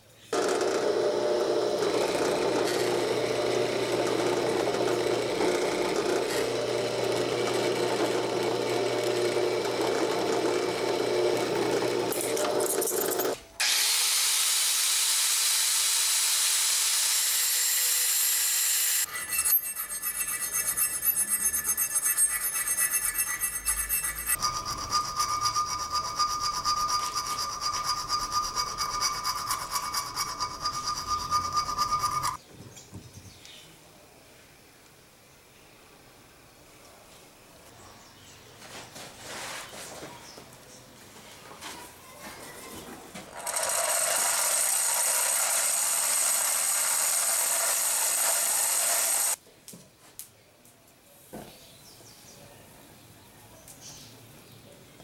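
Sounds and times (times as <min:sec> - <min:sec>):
metal tool rasping on steel: 0:01.8 - 0:13.4, 0:17.4 - 0:32.4
steady high tone: 0:19.0 - 0:32.4
electric blower rushing air: 0:43.4 - 0:49.4.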